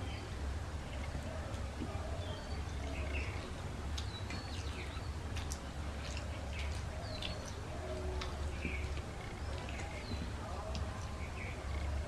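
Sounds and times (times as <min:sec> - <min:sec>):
wet chewing: 0:02.8 - 0:12.0.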